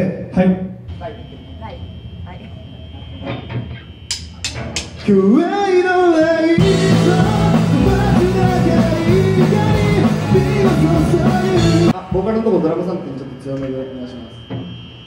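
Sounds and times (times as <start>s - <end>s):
sharp clicks: 4.1s - 5.0s
person singing: 5.0s - 12.0s
live rock band playing: 6.6s - 12.0s.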